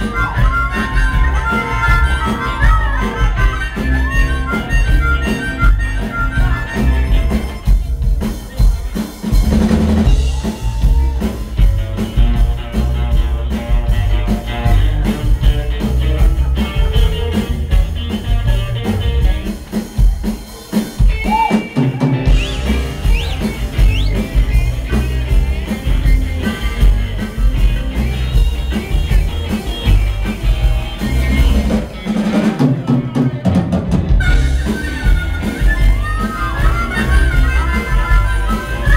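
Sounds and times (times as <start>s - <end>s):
harmonica: 0.0s - 8.9s, 21.0s - 32.5s, 33.2s - 38.9s
upright bass line: 0.0s - 19.6s, 22.0s - 38.9s
drum kit with rimshots: 0.0s - 38.9s
electric guitar: 0.0s - 38.9s.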